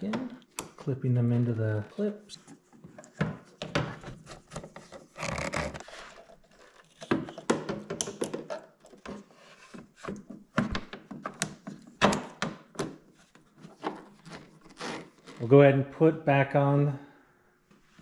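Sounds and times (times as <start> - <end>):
plastic clicks and knocks: 7.0 - 9.2.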